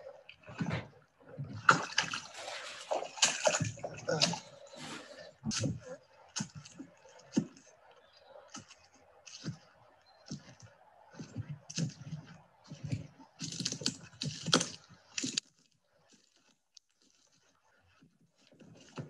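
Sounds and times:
clicks crackles and rustling: 8.5s - 19.0s.

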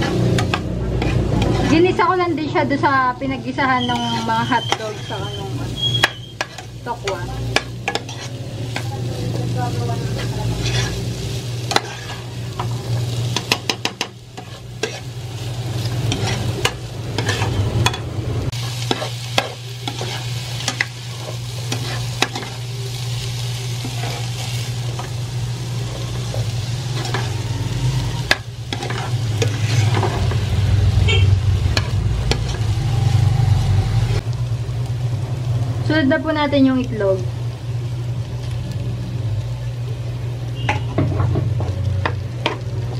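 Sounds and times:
metal spoon scraping a pan: 0.0s - 2.1s, 3.5s - 9.0s, 10.0s - 15.2s, 15.8s - 22.6s, 23.8s - 25.1s, 26.0s - 27.6s, 28.2s - 30.4s, 31.0s - 32.7s
vegetables sizzling in oil: 0.0s - 42.9s.

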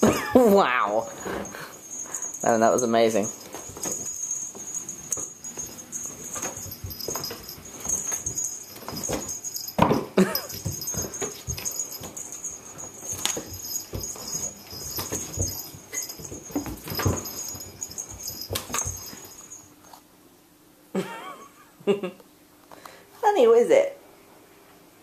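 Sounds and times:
cat thumping and scuffling on wood: 3.3s - 19.3s.

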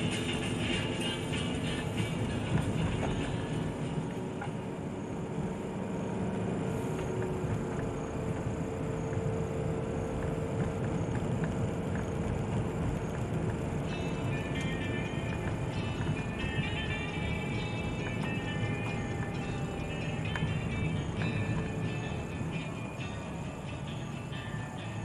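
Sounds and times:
ticks from road bumps: 0.0s - 4.6s, 6.3s - 24.4s
car interior engine and tyre rumble: 0.0s - 25.0s.

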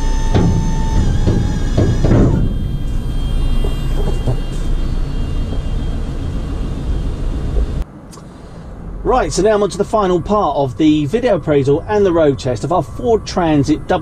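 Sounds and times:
hydraulic pump whining: 0.0s - 7.8s.

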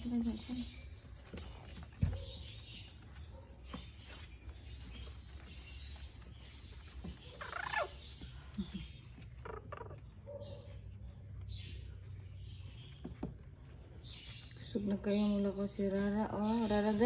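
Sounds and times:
puppies squeaking and whimpering: 0.1s - 13.0s
puppy wavering squeal: 7.3s - 8.0s.

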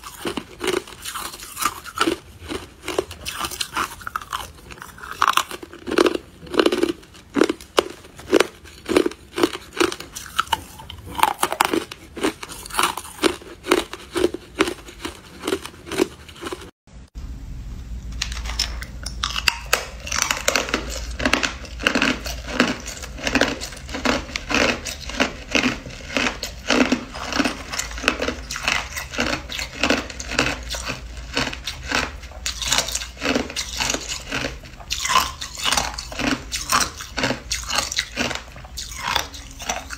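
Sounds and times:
person chewing ice crunching: 0.0s - 16.8s, 18.3s - 39.9s
low hum: 16.9s - 21.8s.

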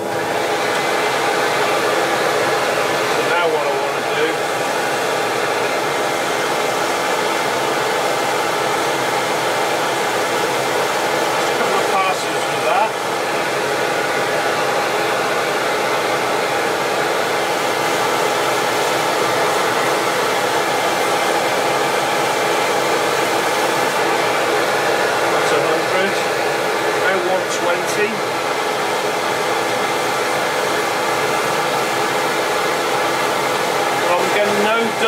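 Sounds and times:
dust extractor running: 0.0s - 35.0s.

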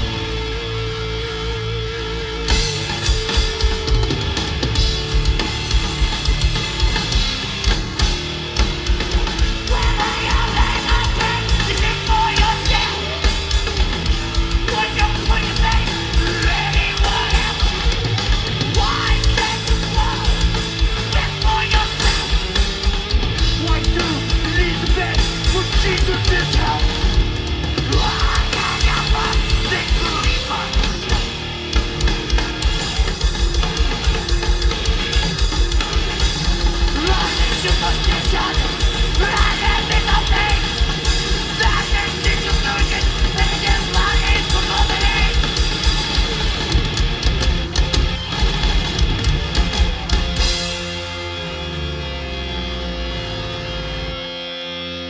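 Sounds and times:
fast pounding drums: 0.0s - 0.7s, 2.5s - 51.6s
distorted guitar and bass: 0.0s - 55.0s
shouted vocals: 9.6s - 13.4s, 14.6s - 18.0s, 18.7s - 22.3s, 27.8s - 31.2s, 37.0s - 45.9s.

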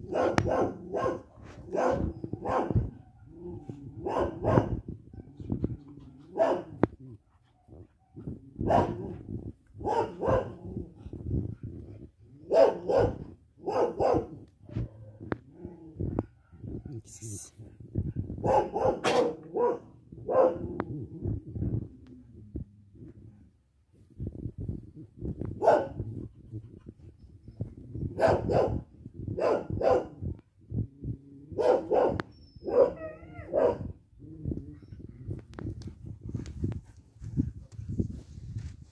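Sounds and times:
dog barking: 0.0s - 2.9s, 4.0s - 4.8s, 6.3s - 6.7s, 8.6s - 9.0s, 9.8s - 10.6s, 12.5s - 14.3s, 18.4s - 20.6s, 25.6s - 26.0s, 28.2s - 28.8s, 29.4s - 30.2s, 31.6s - 33.9s.

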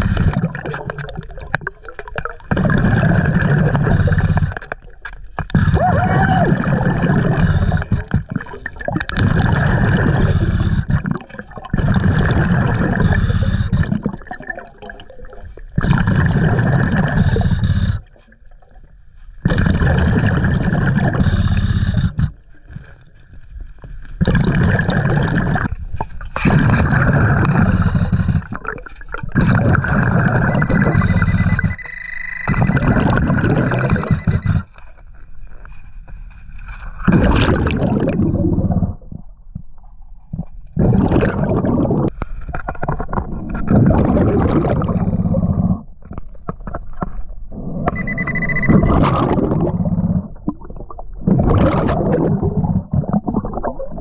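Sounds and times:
exhaled bubbles gurgling: 0.0s - 35.6s, 36.7s - 54.0s
scuba regulator breathing: 26.8s - 28.6s.

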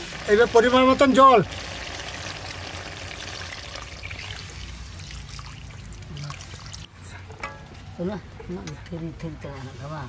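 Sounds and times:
water pouring into a pot: 0.0s - 6.9s.

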